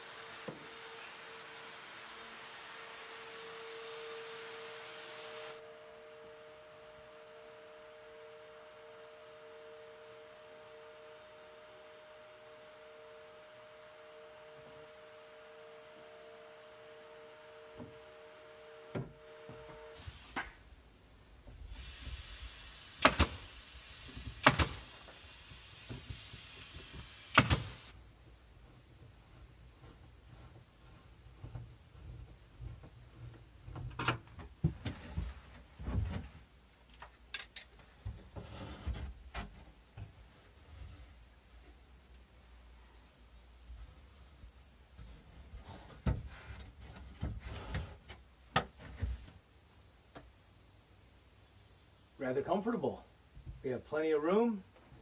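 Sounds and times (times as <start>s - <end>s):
crickets chirring: 19.0s - 55.0s
nail gun whirring and firing: 21.7s - 27.9s.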